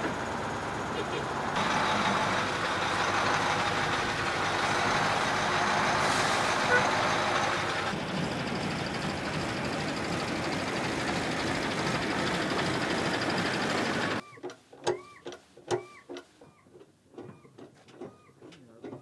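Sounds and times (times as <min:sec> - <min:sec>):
heavy truck driving past: 0:00.0 - 0:14.2
squeaky chirps: 0:14.2 - 0:19.0.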